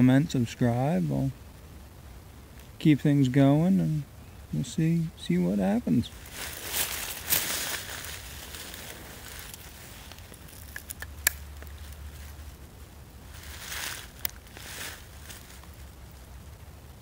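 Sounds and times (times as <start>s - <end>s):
dry leaves and clothing rustling: 5.3s - 17.0s.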